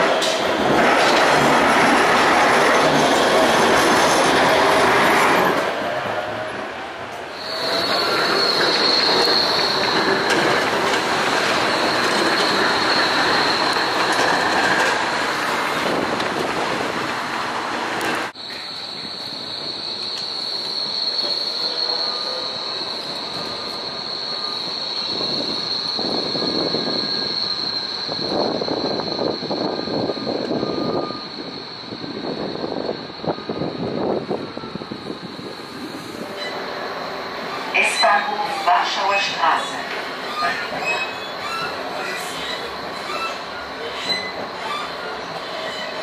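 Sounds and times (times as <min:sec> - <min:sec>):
rail clatter: 0:00.0 - 0:05.8, 0:07.9 - 0:18.6
tram wheels squealing on rails: 0:00.0 - 0:17.0, 0:17.7 - 0:46.0.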